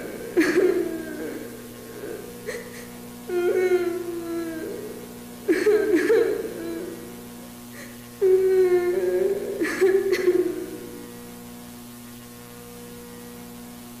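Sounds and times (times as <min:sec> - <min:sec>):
wavering moaning wail: 0:00.0 - 0:02.7, 0:03.3 - 0:07.2, 0:08.2 - 0:11.3
electrical hum: 0:00.0 - 0:14.0.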